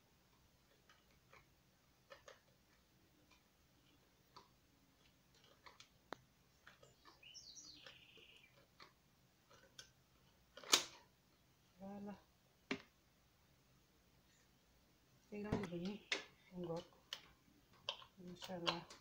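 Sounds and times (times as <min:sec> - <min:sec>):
soft clicks and ticks: 0:00.2 - 0:11.0, 0:15.4 - 0:19.0
faint high chirp: 0:06.8 - 0:08.6, 0:15.6 - 0:16.4.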